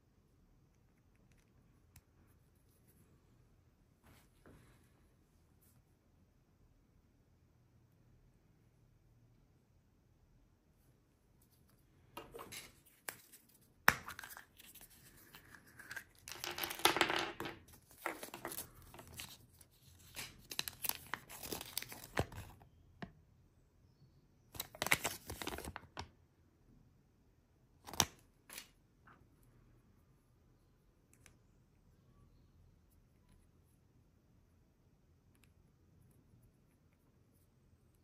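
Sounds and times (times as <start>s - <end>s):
paper wrapper crinkling: 17.9s - 22.5s, 24.6s - 25.9s.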